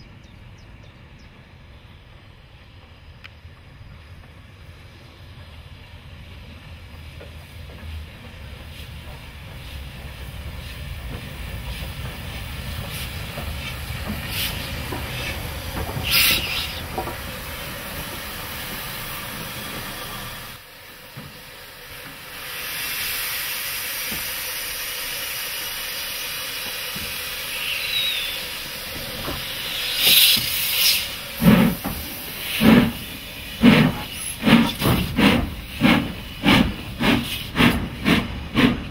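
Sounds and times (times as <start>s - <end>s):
train rumble: 0.0s - 38.9s
steam locomotive exhaust chuffs: 1.5s - 38.9s
steam hissing: 3.8s - 38.9s
drain cocks blowing steam: 9.6s - 38.9s.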